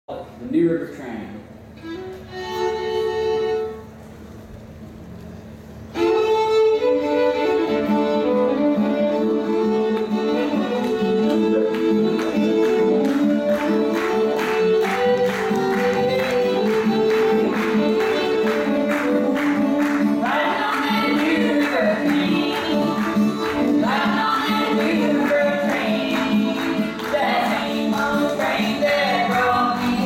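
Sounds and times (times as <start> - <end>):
fiddle playing: 1.8 - 4.0, 5.9 - 30.0
acoustic guitars strumming: 7.8 - 30.0.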